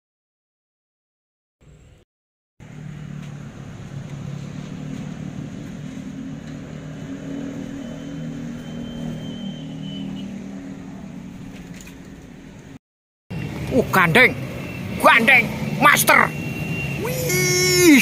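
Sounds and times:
vehicle engine running at low revs: 2.6s - 15.8s
faint thin whistle tone: 7.8s - 10.3s.

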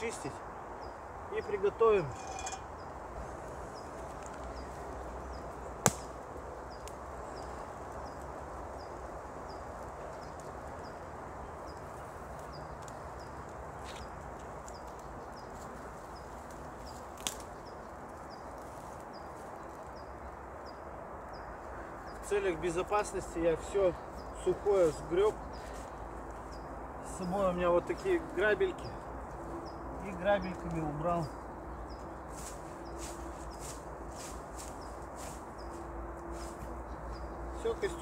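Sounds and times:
rake scraping dry leaves: 1.4s - 2.8s
twigs snapping: 5.8s - 6.2s, 16.4s - 17.6s.

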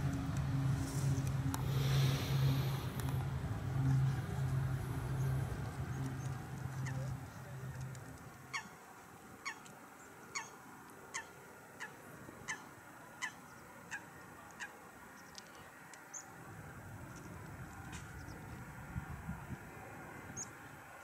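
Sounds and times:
jet engine rumble: 0.0s - 8.2s
bird calling: 5.1s - 7.9s, 8.5s - 8.8s, 10.3s - 16.3s.

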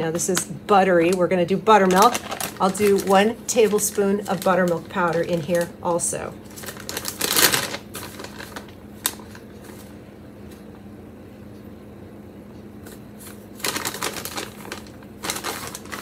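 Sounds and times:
plastic zip bag crinkling: 1.8s - 10.0s, 12.9s - 16.0s.

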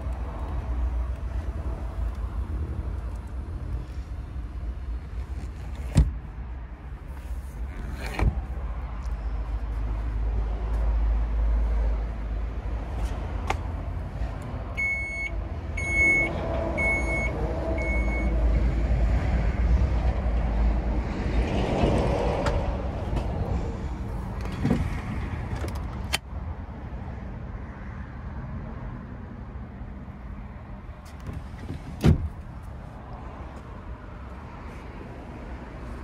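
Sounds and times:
electronic warning beeps: 14.8s - 18.3s.

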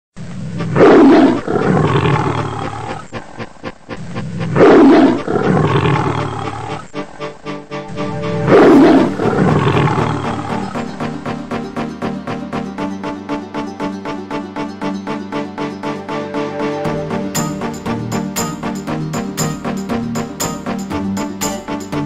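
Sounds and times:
background music: 0.6s - 22.0s
lion roaring: 4.5s - 6.8s.

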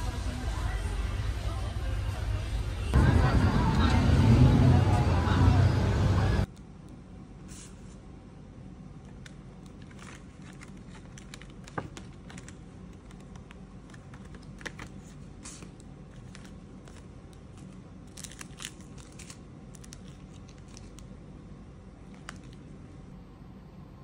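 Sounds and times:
plastic wrap crinkling: 9.2s - 21.2s, 22.0s - 22.8s.

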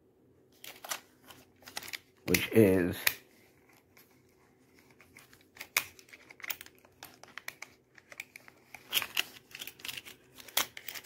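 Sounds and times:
plastic parts clicking and tapping: 0.6s - 2.2s, 4.8s - 11.0s.

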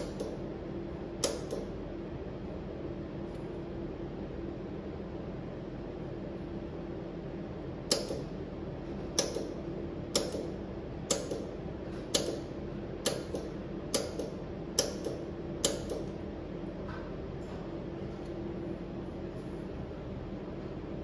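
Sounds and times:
machine hum: 0.0s - 21.0s
laser welder snapping click: 1.2s - 1.7s, 7.9s - 8.3s, 9.1s - 11.5s, 12.1s - 16.2s.

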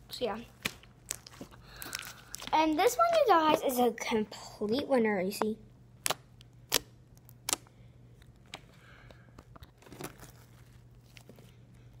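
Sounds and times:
slime clicking and popping: 6.0s - 7.7s.

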